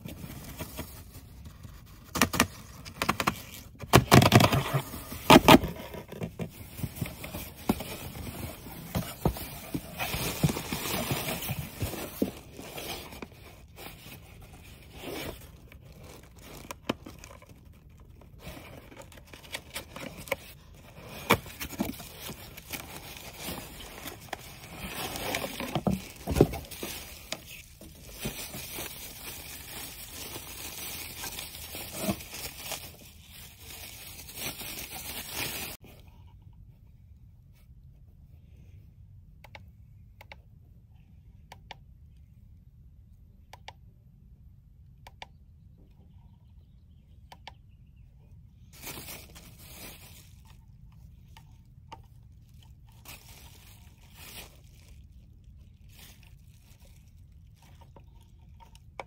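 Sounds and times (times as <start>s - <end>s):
bubble wrap and cardboard crinkling: 0.0s - 35.9s, 48.7s - 59.0s.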